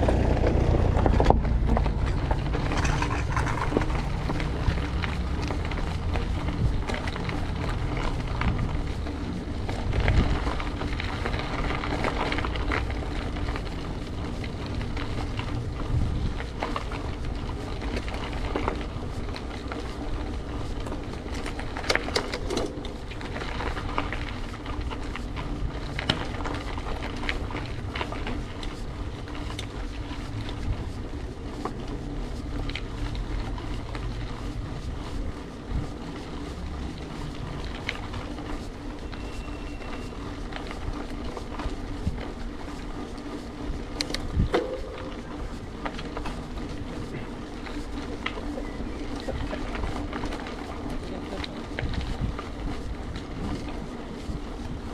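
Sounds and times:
bicycle rolling: 0.0s - 54.9s
small clicks and rattles: 0.0s - 54.9s
wind on microphone: 5.6s - 11.6s, 15.3s - 17.6s, 43.6s - 45.8s, 51.6s - 54.9s.

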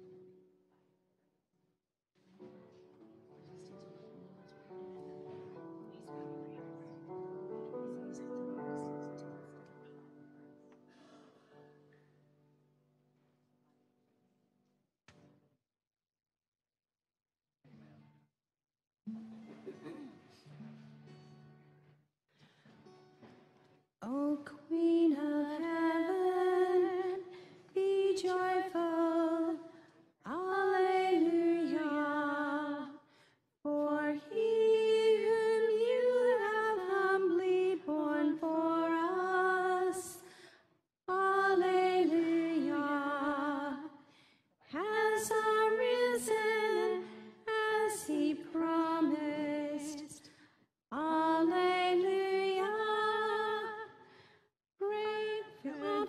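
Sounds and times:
woman singing: 24.0s - 33.0s, 33.7s - 40.3s, 41.1s - 44.0s, 44.7s - 50.2s, 50.9s - 54.0s, 54.8s - 56.0s.

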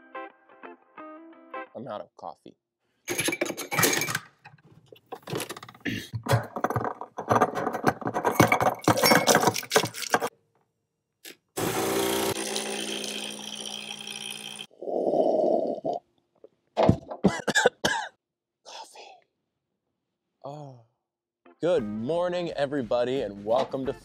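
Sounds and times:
espresso machine pump buzzing: 11.6s - 14.7s.

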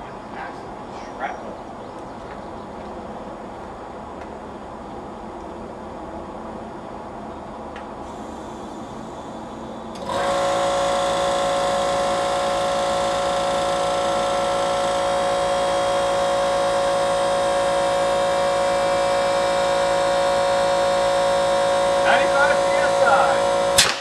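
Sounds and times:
motor whining: 8.1s - 23.8s.

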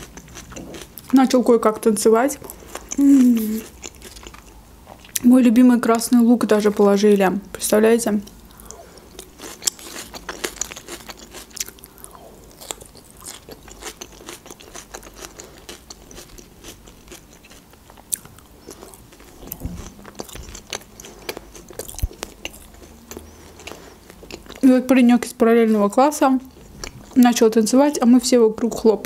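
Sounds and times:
person chewing food: 0.0s - 1.1s, 2.4s - 5.2s, 8.2s - 24.7s, 26.5s - 27.2s.

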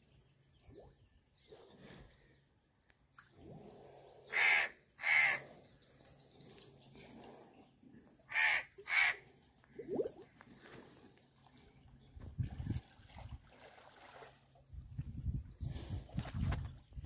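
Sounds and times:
crow cawing: 4.3s - 5.4s, 8.3s - 9.2s.

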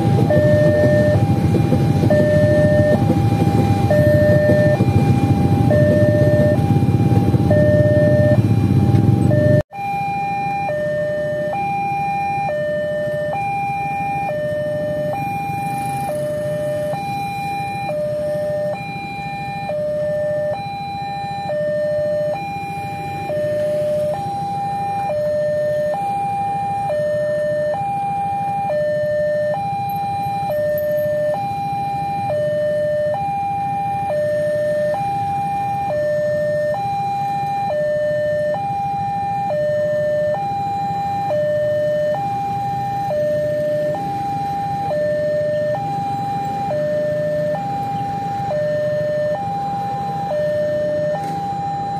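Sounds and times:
passing train rumble: 0.0s - 9.6s
two-tone crossing alarm: 0.0s - 51.9s.

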